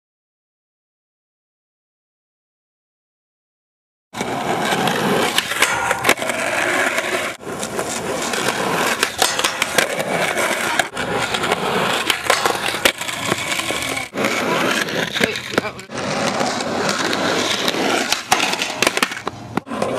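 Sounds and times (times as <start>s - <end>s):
skateboard deck clacks: 4.2s - 19.9s
skateboard wheels rolling on concrete: 4.2s - 19.9s.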